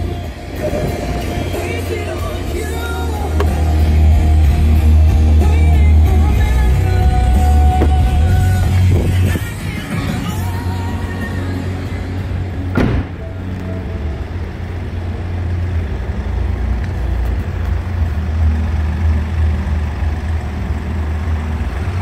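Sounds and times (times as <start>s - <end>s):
diesel engine idling: 0.0s - 22.0s
car door shutting: 3.3s - 3.8s, 7.7s - 9.2s, 12.7s - 13.4s.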